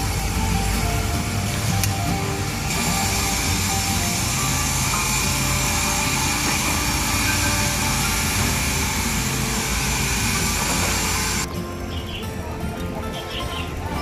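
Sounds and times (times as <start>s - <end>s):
saw cutting concrete high whine: 0.0s - 11.5s.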